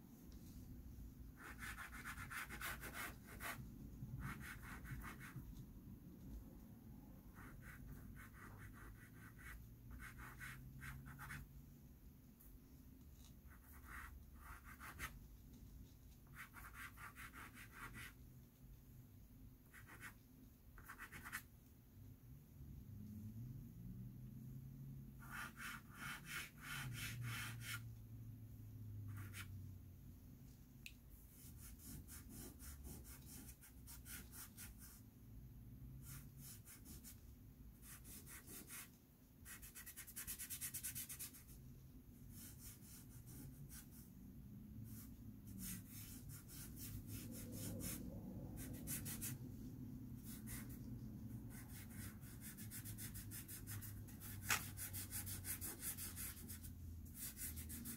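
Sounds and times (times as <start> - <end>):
pastel scratching on paper: 1.4 - 3.6, 4.2 - 5.4, 13.2 - 15.2, 16.1 - 18.2, 19.7 - 20.2, 20.8 - 21.5, 31.3 - 35.0, 37.8 - 41.6, 44.9 - 49.4, 50.2 - 57.9.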